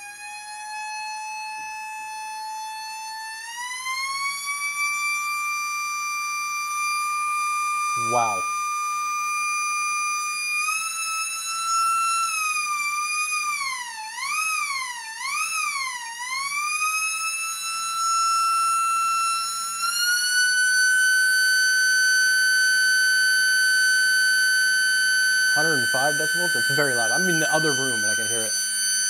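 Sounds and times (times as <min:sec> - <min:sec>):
siren wailing on high tone: 0:25.1 - 0:29.0.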